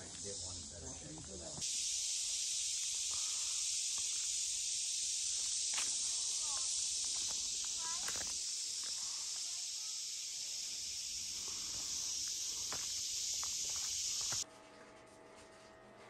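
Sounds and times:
insects droning: 0.0 - 14.4
footsteps on dirt trail: 5.3 - 9.5, 11.3 - 14.4.

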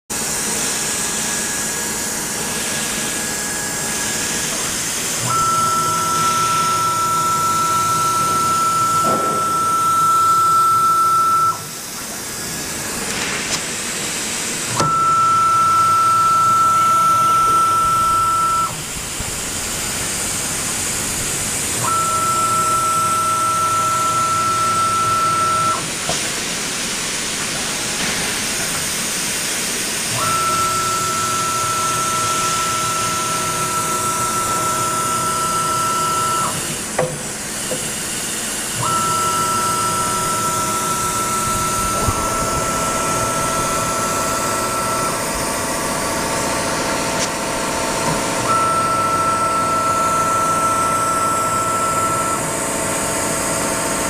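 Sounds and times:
high-pitched machine whine: 0.1 - 54.0.

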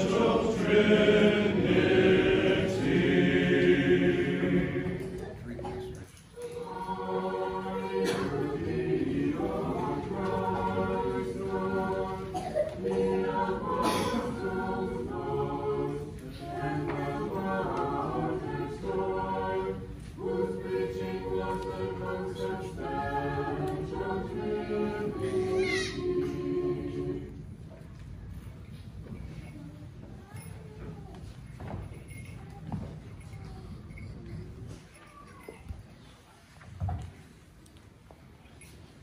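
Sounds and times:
choir singing a cappella hymn: 0.0 - 27.7.

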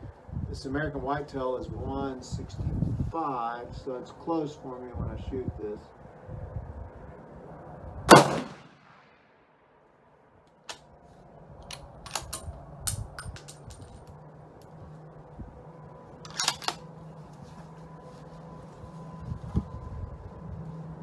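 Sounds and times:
rifle shot with ringing tail: 8.1 - 9.3
rifle bolt clicking: 16.3 - 16.8.

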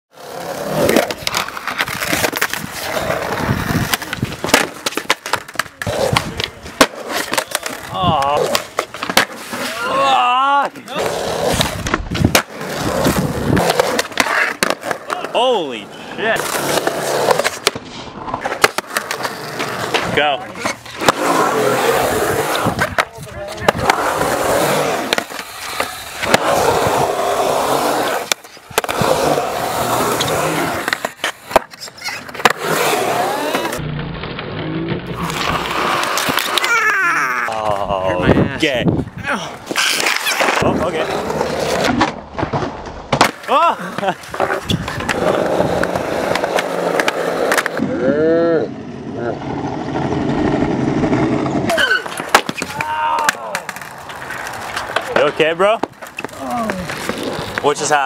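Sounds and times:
skateboard wheels rolling on concrete: 0.1 - 58.0
skateboard clacks and knocks: 3.3 - 9.5, 50.0 - 57.7.

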